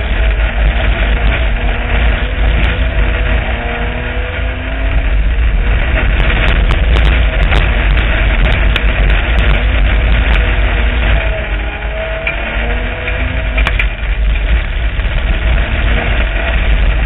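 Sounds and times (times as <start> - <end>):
car body rattling: 0.0 - 17.0
race car engine running hard: 0.0 - 17.0
sharp clicks and knocks: 12.2 - 16.7.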